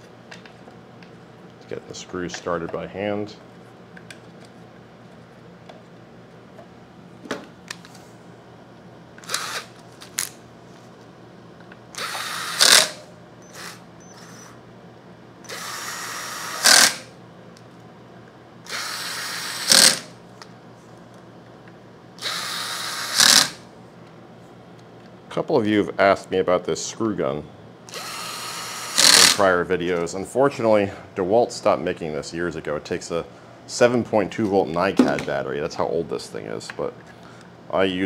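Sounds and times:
cordless screw gun driving screws: 0:09.2 - 0:09.7, 0:12.0 - 0:14.5, 0:15.5 - 0:17.1, 0:18.7 - 0:20.1, 0:22.2 - 0:23.6, 0:27.9 - 0:29.4.

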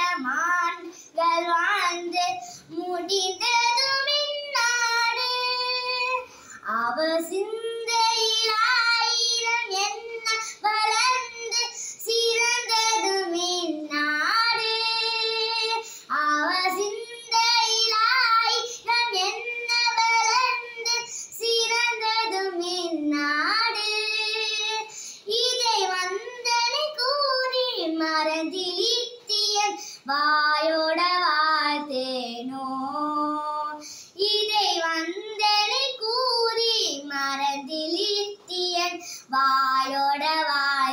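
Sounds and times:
girl singing unaccompanied: 0:00.0 - 0:40.9
short breaths: 0:06.2 - 0:06.6, 0:11.7 - 0:12.0, 0:24.9 - 0:25.3, 0:33.8 - 0:34.2, 0:39.0 - 0:39.3.

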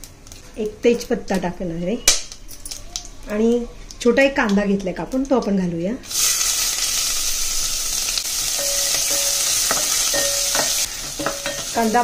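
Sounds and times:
onion sizzling in hot oil: 0:06.0 - 0:12.0.

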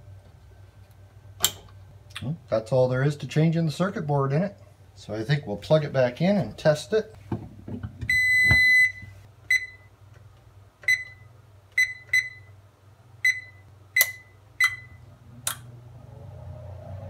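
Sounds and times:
steady low hum: 0:00.0 - 0:17.0
oven control clicks: 0:01.4 - 0:01.8, 0:15.4 - 0:15.7
short key-press beeps: 0:13.3 - 0:15.0.

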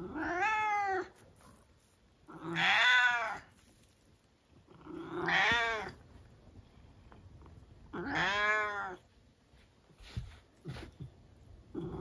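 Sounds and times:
cat meowing: 0:00.0 - 0:01.2, 0:02.3 - 0:03.5, 0:04.9 - 0:06.0, 0:08.0 - 0:09.0.

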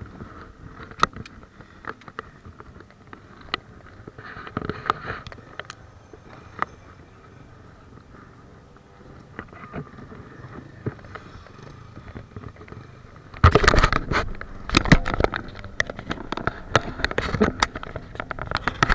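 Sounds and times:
scraping and rubbing: 0:09.4 - 0:18.9
camera handling noise: 0:12.1 - 0:18.9.

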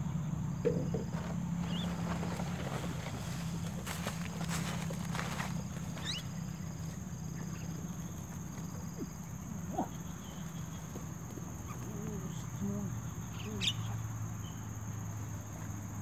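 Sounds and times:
high insect drone: 0:00.0 - 0:16.0
thump: 0:00.6 - 0:01.3
bird chirps: 0:06.0 - 0:08.2, 0:11.6 - 0:14.7.

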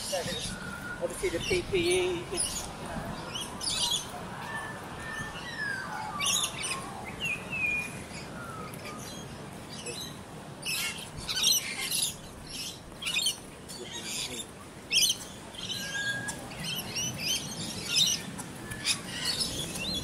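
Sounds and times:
birds squawking: 0:09.9 - 0:20.0.

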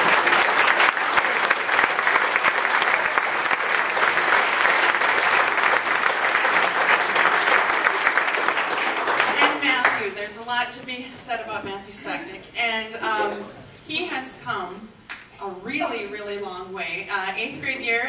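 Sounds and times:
crowd applauding: 0:00.0 - 0:10.0.

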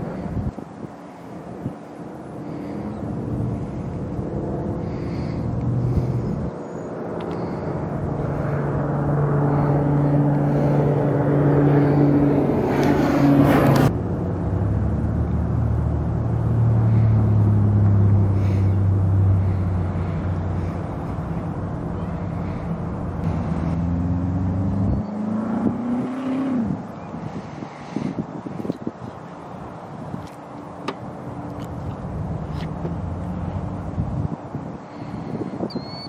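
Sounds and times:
propeller airplane flying past: 0:00.0 - 0:28.2.

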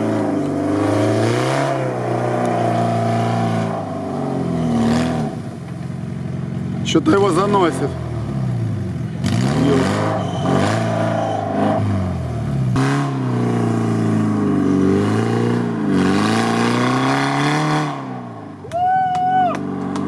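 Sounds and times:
engine revving hard: 0:00.0 - 0:05.4, 0:09.2 - 0:18.4.

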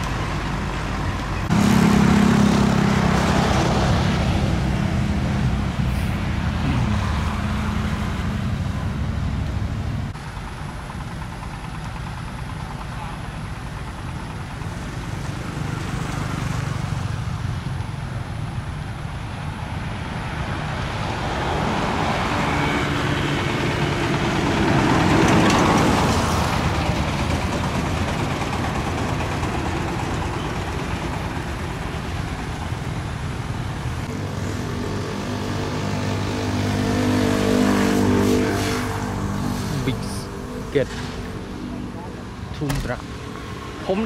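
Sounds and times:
traffic engine rumble: 0:00.0 - 0:44.0
vehicle passing: 0:01.4 - 0:10.2, 0:19.9 - 0:28.6, 0:29.2 - 0:44.0.

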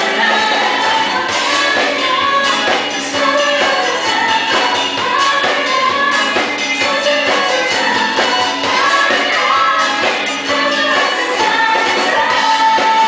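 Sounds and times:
lead vocals singing: 0:00.0 - 0:13.0
live band playing: 0:00.0 - 0:13.0.

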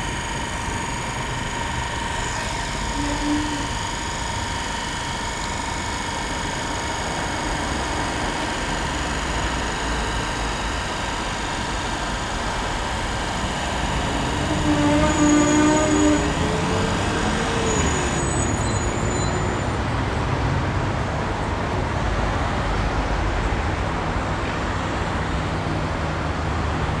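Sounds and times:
city traffic noise: 0:00.0 - 0:04.9, 0:05.8 - 0:27.0
short pitched tones: 0:00.0 - 0:07.3.

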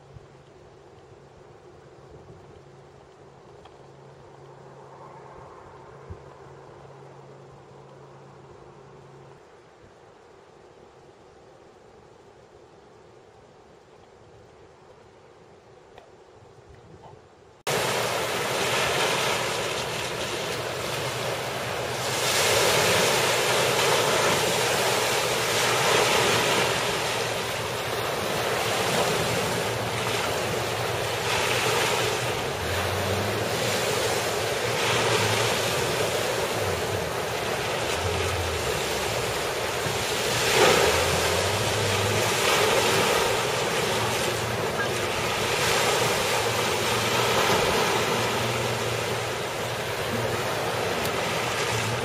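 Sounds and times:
low boat motor hum: 0:17.7 - 0:52.0
water rushing from spillway: 0:17.7 - 0:52.0.

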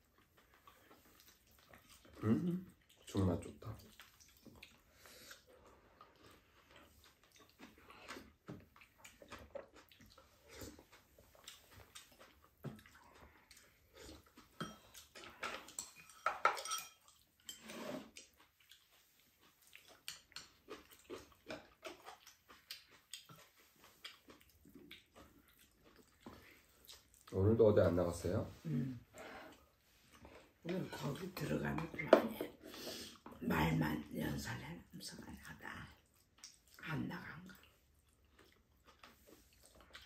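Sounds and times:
spoons clinking ceramic bowls: 0:15.7 - 0:17.6.

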